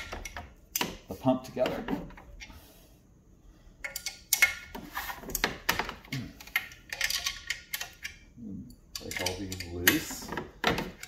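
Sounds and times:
wrench clicking on metal bolts: 3.8s - 4.7s, 8.9s - 10.2s.

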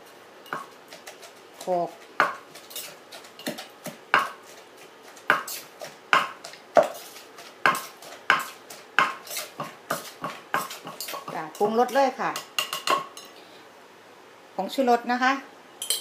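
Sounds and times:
pestle pounding in a mortar: 0.5s - 4.5s, 5.1s - 13.1s.

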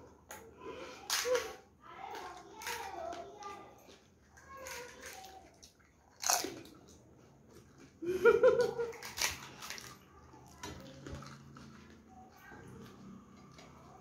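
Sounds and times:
crunching and chewing: 0.0s - 14.0s
crisp shells cracking: 6.1s - 6.9s, 8.6s - 11.5s.

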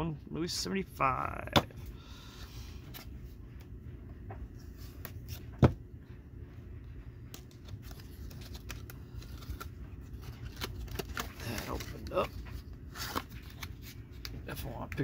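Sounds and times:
paper rustling: 7.4s - 14.4s.

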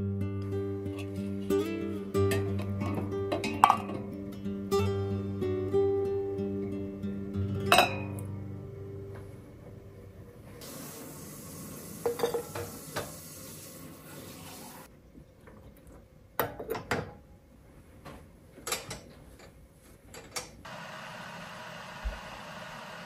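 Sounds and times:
dishes and utensils clinking: 2.2s - 4.1s, 7.7s - 8.2s, 12.0s - 13.2s
steady hiss: 10.6s - 14.9s.

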